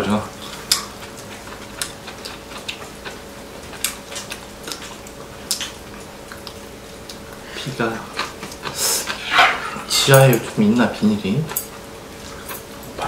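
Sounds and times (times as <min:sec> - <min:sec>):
chopsticks clicking against bowls: 0:10.0 - 0:11.8.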